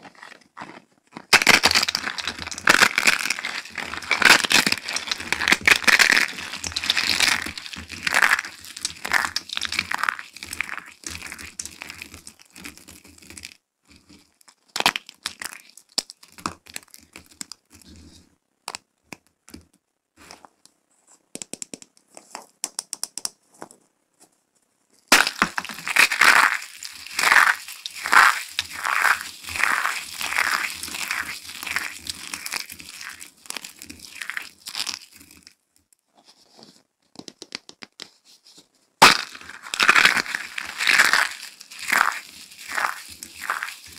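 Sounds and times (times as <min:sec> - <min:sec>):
soap crunching between hands: 0:00.0 - 0:17.8, 0:25.1 - 0:35.6, 0:39.0 - 0:43.9
soap pieces cracking: 0:00.2 - 0:13.4, 0:14.7 - 0:17.8, 0:25.1 - 0:35.6, 0:39.0 - 0:43.9.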